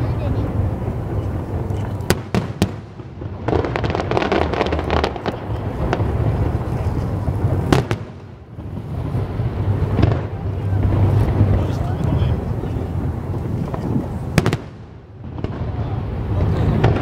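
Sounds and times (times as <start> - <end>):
distant firework bangs: 0.0 - 17.0
firework crackling: 0.0 - 17.0
low rumble: 0.0 - 17.0.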